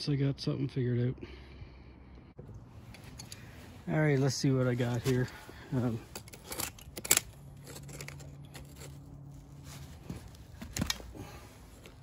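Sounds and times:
pliers clicking and scraping: 4.9 - 9.4.

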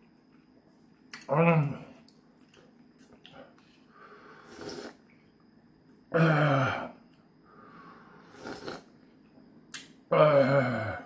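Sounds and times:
throaty exhale: 3.9 - 5.0, 7.5 - 8.9
man slurping broth: 4.5 - 5.0, 8.3 - 8.9.

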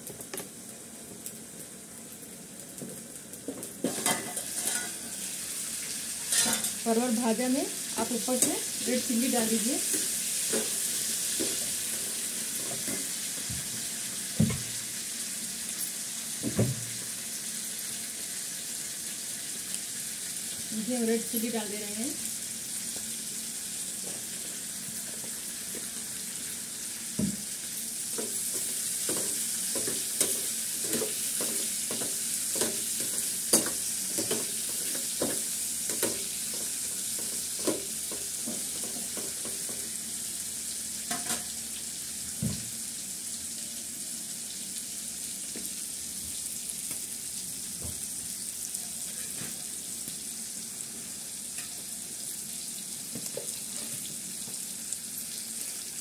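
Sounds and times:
vegetables sizzling in oil: 0.0 - 56.0
spatula scraping a pan: 3.8 - 5.1, 6.2 - 6.8, 53.6 - 54.1.

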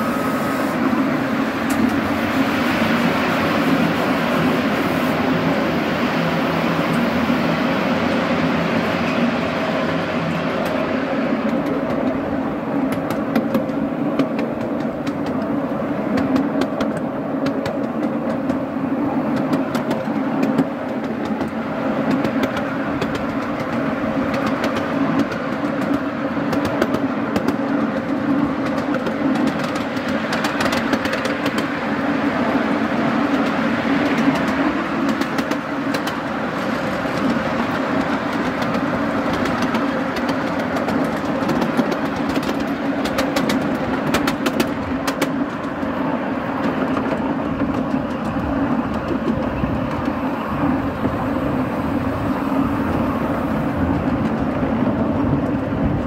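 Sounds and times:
train wheels rumbling on rail: 0.0 - 56.0
short rail clicks: 1.6 - 2.1, 19.3 - 31.7, 33.3 - 46.0.

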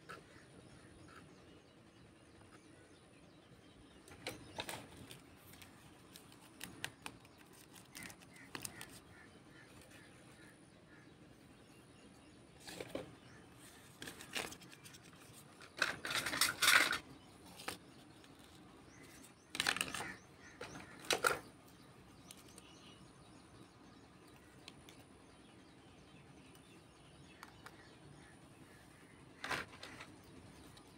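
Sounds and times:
plastic toys handled: 4.0 - 9.2, 12.5 - 21.5.

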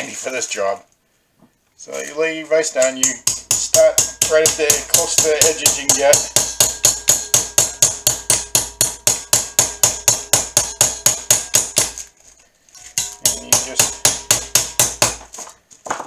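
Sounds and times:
hammer tapping on copper: 2.8 - 12.1, 13.0 - 15.3.

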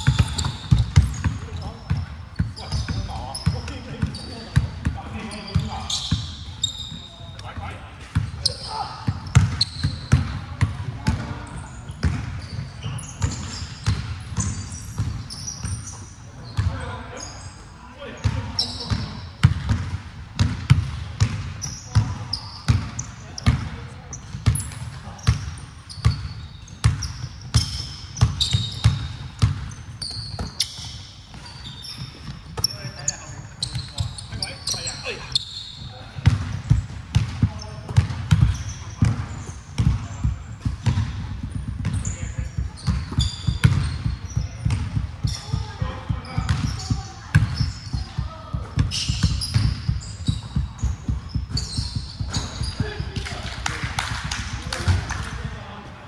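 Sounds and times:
sneakers squeaking on floor: 0.0 - 55.8
basketball bouncing on hardwood: 36.2 - 42.1, 42.8 - 52.9.

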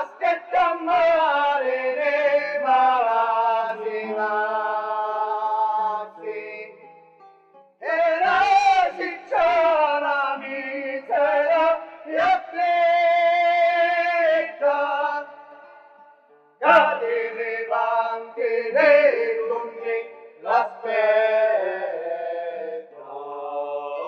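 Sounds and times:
group singing held notes: 2.8 - 6.4, 16.7 - 24.0.

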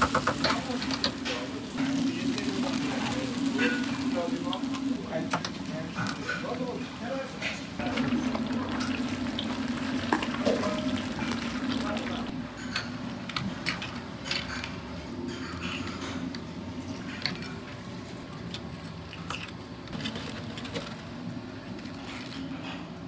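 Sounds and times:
utensils clicking and knocking: 0.0 - 1.5.

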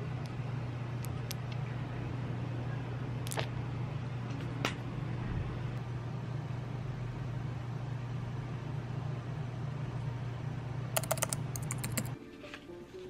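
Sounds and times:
steady low hum: 0.0 - 12.2
keyboard keystrokes: 11.0 - 12.2.

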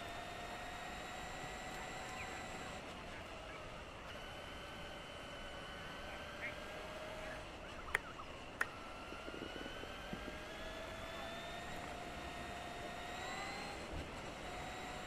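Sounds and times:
electric rc truck motor whining: 0.0 - 15.0
sharp ticks: 7.8 - 8.8.

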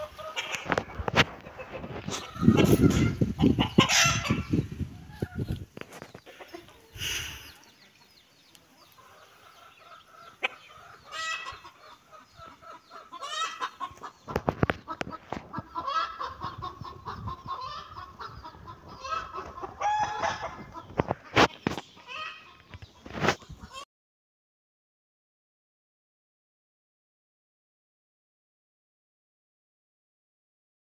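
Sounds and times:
chickens clucking: 0.0 - 23.9.

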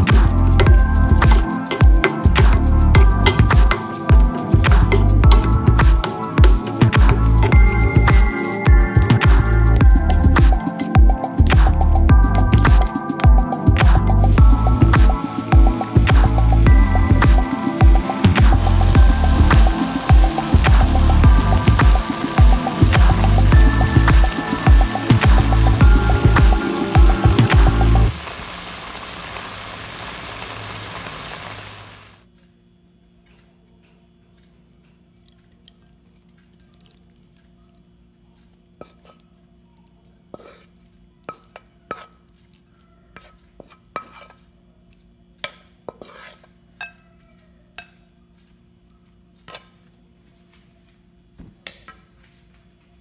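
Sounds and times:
food sizzling in a pan: 0.0 - 11.8, 12.7 - 32.2
faint steady hum: 0.0 - 12.8, 13.6 - 43.6.

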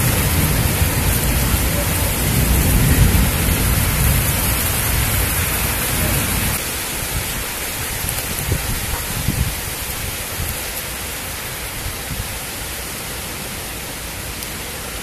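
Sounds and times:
thunder rumbling: 0.0 - 9.7
rain hissing: 0.0 - 15.0.

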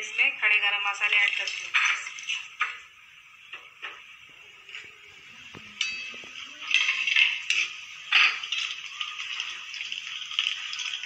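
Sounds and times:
spices sizzling in hot oil: 5.8 - 11.0.

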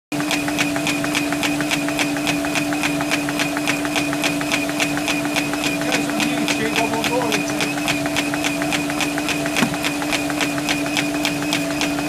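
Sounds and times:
rapid even clicking: 2.5 - 11.6
machine hum: 3.8 - 12.0.

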